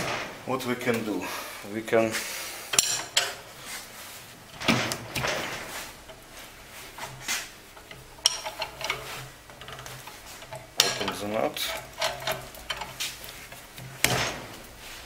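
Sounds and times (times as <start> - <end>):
spanner clinking on metal: 2.7 - 3.4, 7.8 - 14.3
metal scraping clatter: 6.9 - 14.9.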